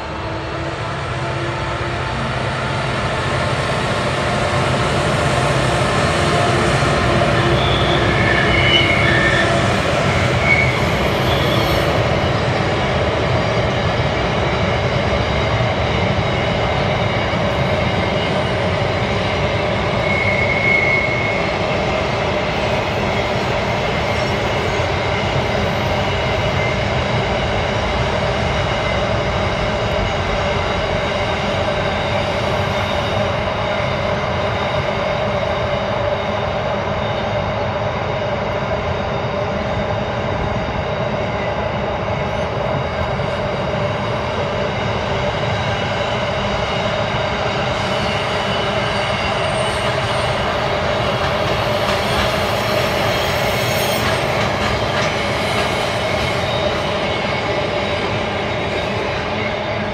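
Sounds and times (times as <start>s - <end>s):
diesel locomotive engines: 0.0s - 59.9s
train wheels rumbling on rails: 0.0s - 59.9s
high wheel squeals: 5.3s - 12.5s, 17.8s - 27.0s, 45.6s - 59.9s.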